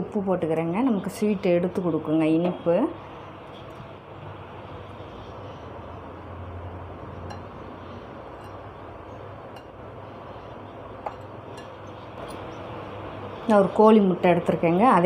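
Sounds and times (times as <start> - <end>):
steady low hum: 0.0 - 15.0
spoon clinking on glass: 8.4 - 8.6, 11.0 - 12.4.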